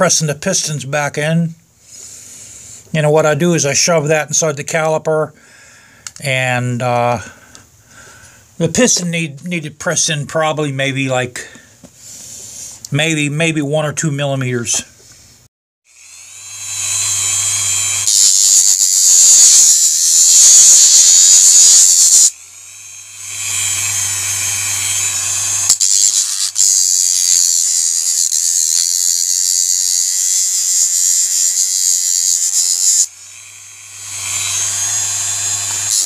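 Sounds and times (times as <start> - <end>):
rotary tool high whine: 15.9 - 36.0.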